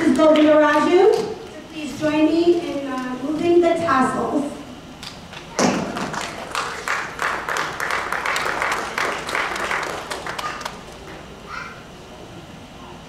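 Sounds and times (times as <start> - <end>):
audience clapping: 5.0 - 11.2.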